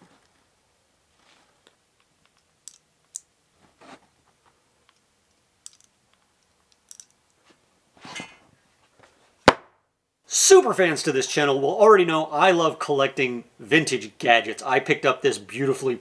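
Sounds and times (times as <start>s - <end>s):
sharp knock: 9.5s - 9.8s.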